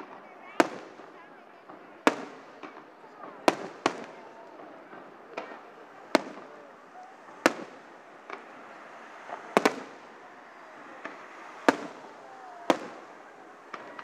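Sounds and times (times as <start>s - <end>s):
fireworks booming: 0.0s - 14.0s.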